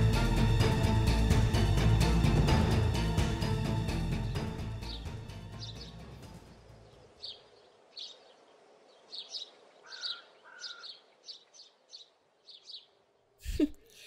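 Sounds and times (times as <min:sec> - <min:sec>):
birds chirping: 0:04.8 - 0:14.0.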